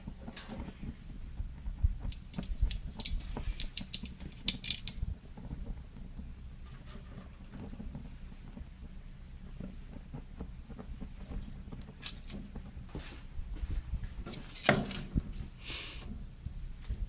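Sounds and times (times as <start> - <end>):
charcoal clicking and crackling: 0.0 - 13.0.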